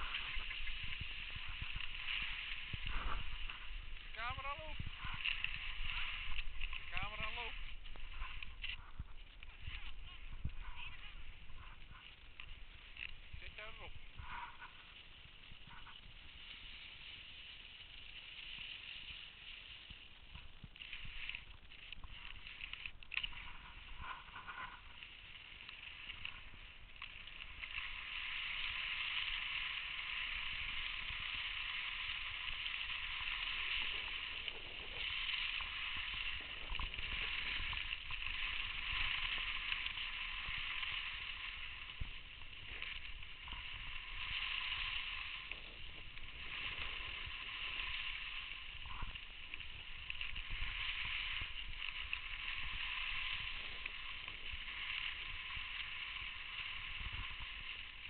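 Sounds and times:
skis scraping over snow: 0.0 - 58.0.

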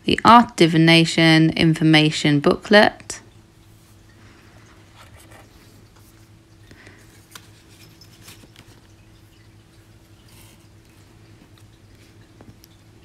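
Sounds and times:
steady low hum: 0.0 - 13.0
paper rustling in a box: 7.1 - 9.0.

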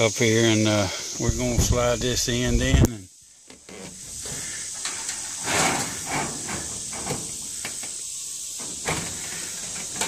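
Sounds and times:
sheet metal scraping on metal roof: 3.6 - 10.0.

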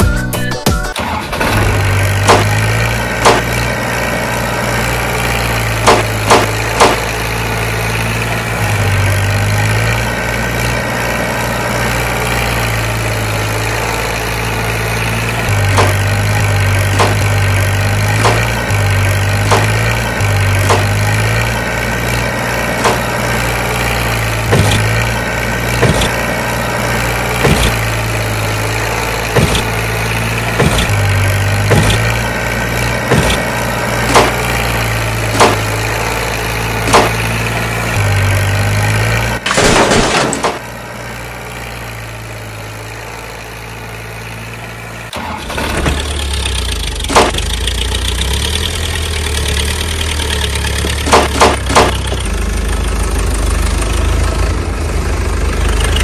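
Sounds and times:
deeper-pitched engine: 0.0 - 56.0
tractor engine running: 0.0 - 56.0
regular engine knock: 2.1 - 3.6, 5.8 - 7.1, 16.8 - 17.4, 20.6 - 21.1, 30.5 - 32.1, 35.4 - 35.8, 46.0 - 52.4.

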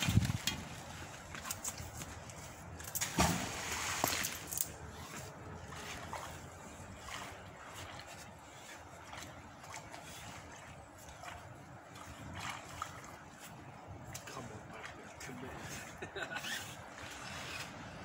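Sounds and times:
outdoor background noise: 0.0 - 18.0
small splash or knock: 3.0 - 4.4
object splashing into river: 3.0 - 4.5.

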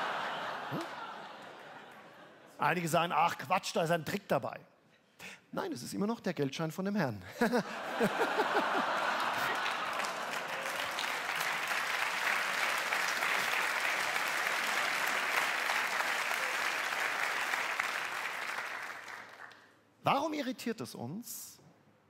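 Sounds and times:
audience laughter: 0.0 - 2.6, 7.4 - 10.5
audience applauding: 8.0 - 19.7.

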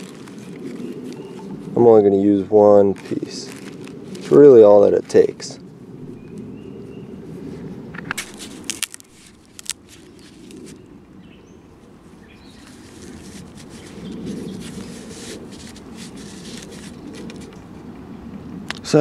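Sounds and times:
rustling plant stalk: 0.0 - 5.6, 7.4 - 10.9, 11.8 - 17.6.

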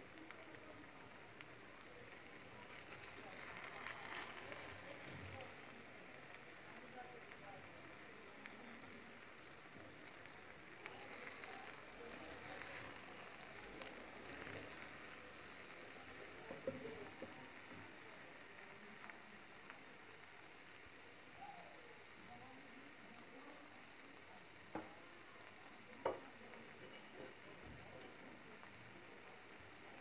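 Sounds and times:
spoon stirring grains: 8.8 - 17.2.

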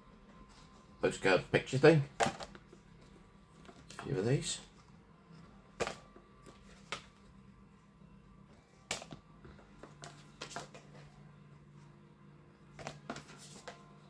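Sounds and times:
cards slapping and rustling: 5.8 - 7.2, 8.8 - 11.1, 12.7 - 13.9.

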